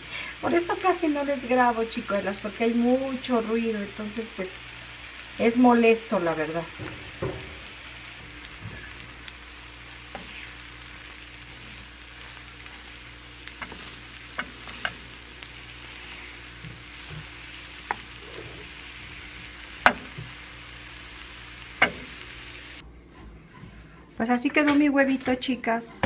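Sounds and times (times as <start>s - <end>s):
eggs sizzling in a frying pan: 0.0s - 22.8s
spatula knocking against pan: 6.7s - 7.8s, 19.8s - 20.3s, 21.8s - 22.1s
spatula stirring: 9.9s - 20.4s.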